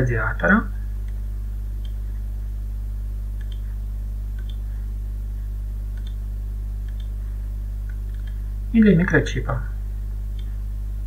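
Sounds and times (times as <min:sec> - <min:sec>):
low electrical hum: 0:00.0 - 0:11.0
computer mouse clicks: 0:01.8 - 0:02.0, 0:03.4 - 0:03.7, 0:04.4 - 0:04.6, 0:05.9 - 0:06.2, 0:06.8 - 0:07.2, 0:07.8 - 0:08.4.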